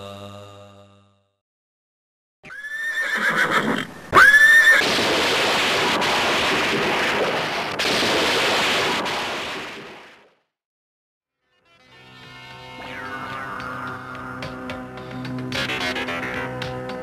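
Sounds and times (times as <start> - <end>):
horse neighing: 2.4 - 4.8
steady rushing noise: 4.8 - 10.2.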